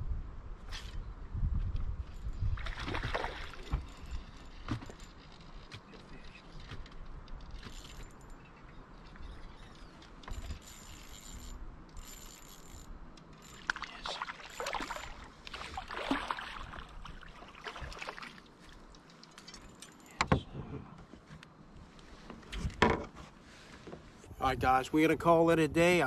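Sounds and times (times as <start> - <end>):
fish splashing at water surface: 13.6 - 18.4.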